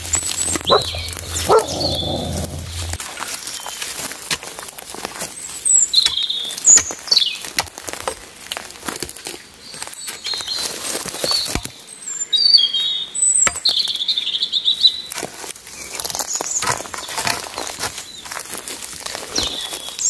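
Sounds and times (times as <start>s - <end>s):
small birds chirping: 0.0s - 3.0s.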